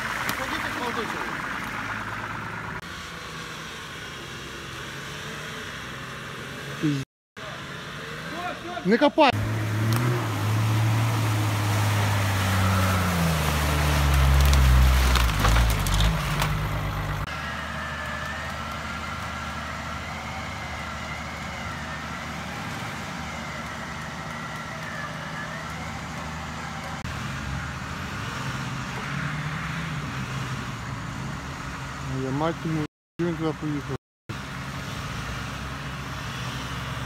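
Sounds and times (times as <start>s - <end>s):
mud and water splashing: 0.0s - 5.6s, 8.2s - 27.4s
off-road engine revving hard: 0.0s - 32.4s
distant engines running steadily: 0.0s - 37.0s.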